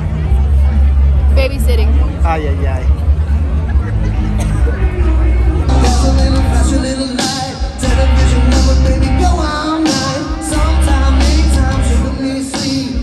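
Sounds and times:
live rock band: 2.9s - 13.0s
person singing: 4.6s - 13.0s.

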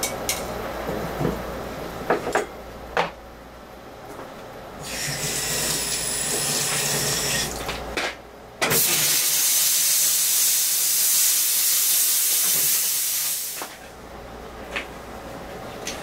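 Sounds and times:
steam jet hissing: 8.8s - 13.6s.

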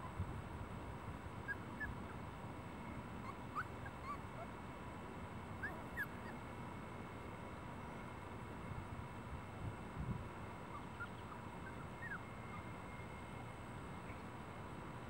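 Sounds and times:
puppies whimpering: 1.5s - 2.0s, 3.2s - 4.5s, 5.6s - 6.4s, 10.7s - 12.6s.

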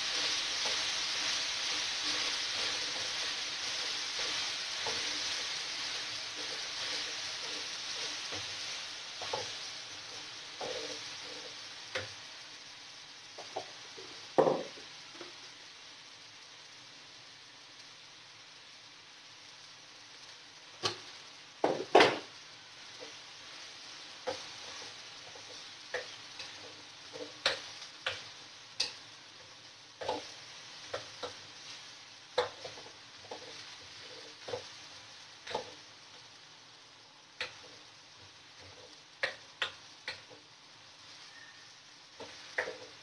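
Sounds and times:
spatula scraping metal wok: 0.0s - 12.0s, 24.3s - 28.2s
faint sizzle: 0.0s - 43.0s.

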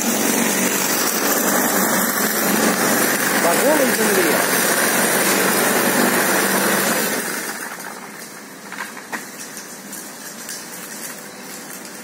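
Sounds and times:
lawn mower engine running: 0.0s - 9.2s.

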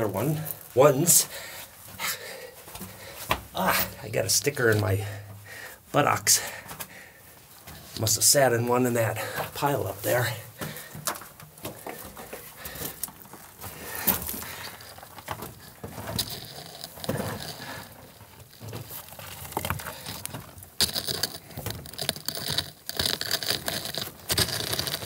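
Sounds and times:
small stones clicking: 14.0s - 25.0s.

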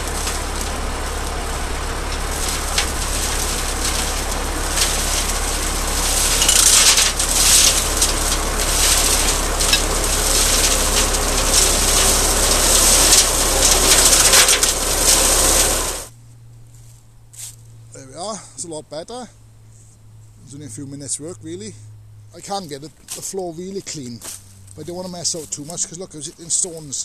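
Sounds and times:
flail hedge cutter whirring: 0.0s - 16.1s
tractor engine drone: 0.0s - 16.2s.

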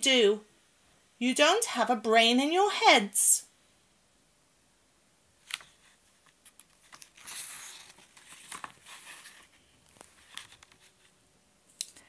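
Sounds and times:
paper page turning: 5.4s - 11.2s.

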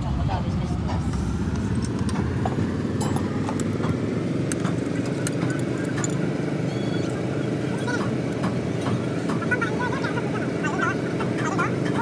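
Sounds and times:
diesel engine idling with clatter: 0.0s - 12.0s
metallic clinks of hand tools: 4.5s - 6.4s.

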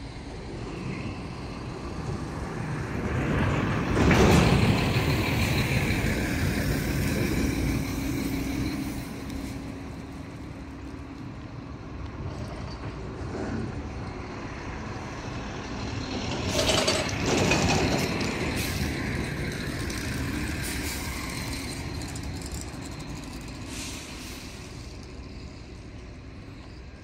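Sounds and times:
air brake hiss: 23.6s - 25.1s.

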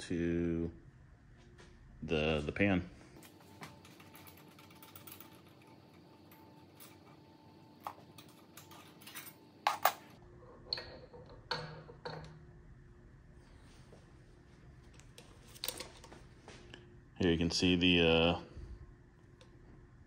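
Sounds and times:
faint steady hum: 0.0s - 20.0s
tools clicking and knocking: 7.8s - 12.4s.

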